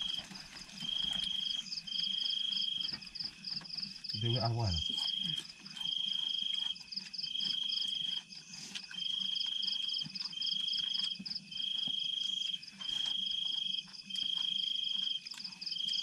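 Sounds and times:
cricket trilling: 0.0s - 16.0s
fast pulsing insect chirr: 4.1s - 5.4s.

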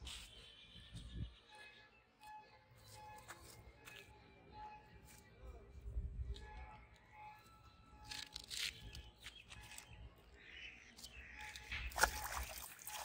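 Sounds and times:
outdoor rustling: 0.0s - 13.0s
fish thrashing and splashing: 11.7s - 13.0s.

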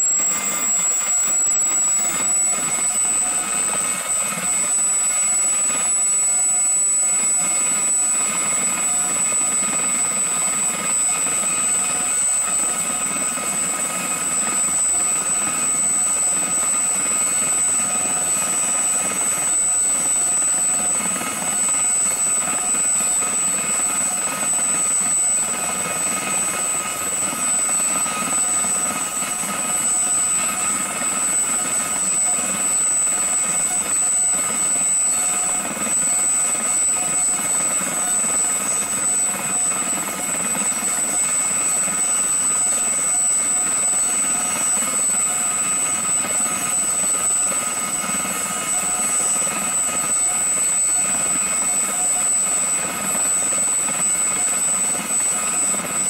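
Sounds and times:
helicopter rotor noise: 0.0s - 56.0s
helicopter turbine whine: 0.0s - 56.0s.

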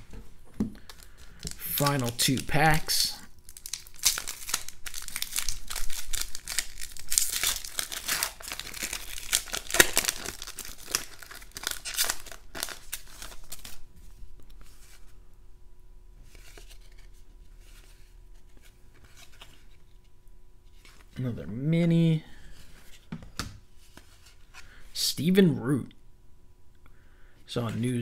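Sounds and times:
soft rustles of cards: 0.2s - 15.3s, 16.2s - 21.4s, 22.4s - 25.0s
foil wrapper tearing and crinkling: 0.9s - 13.8s.

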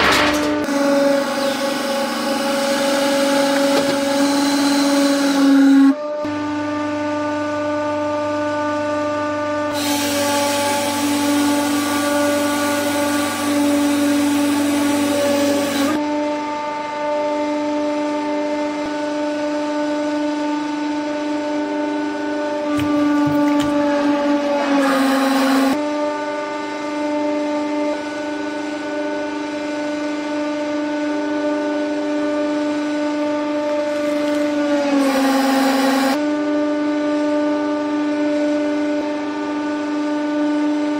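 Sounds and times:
hydraulic press whining: 0.0s - 6.4s, 22.5s - 25.8s, 33.3s - 36.2s.

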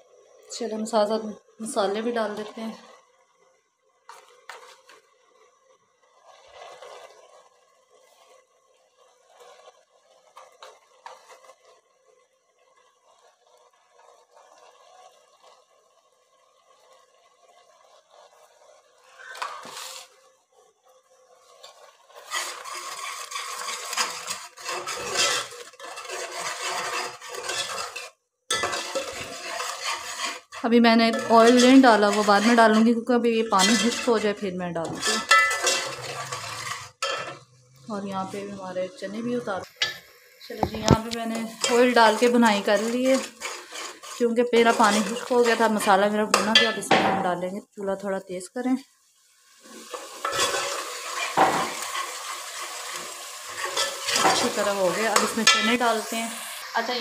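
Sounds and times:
spoon stirring in metal pot: 4.1s - 5.0s, 21.6s - 37.5s, 39.7s - 47.2s, 49.7s - 56.0s.

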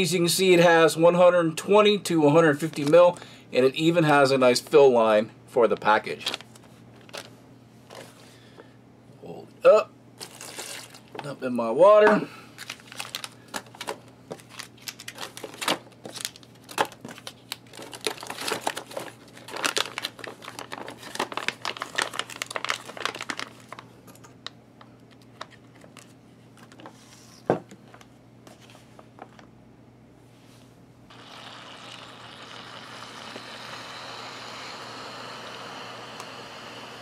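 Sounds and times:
plastic bag and foil crinkling: 5.7s - 7.4s, 10.2s - 11.2s, 12.5s - 24.0s.

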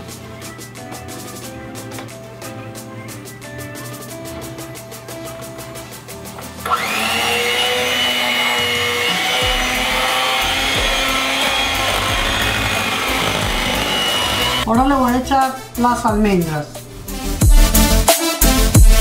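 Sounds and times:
background music with a beat: 0.0s - 7.0s, 9.1s - 19.0s
electric hand mixer whine: 6.6s - 14.6s.

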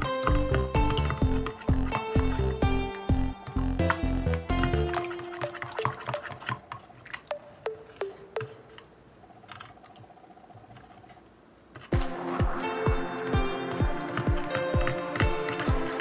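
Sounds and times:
background music with beat: 0.0s - 6.1s, 11.9s - 16.0s
water drips plinking: 0.0s - 10.2s.

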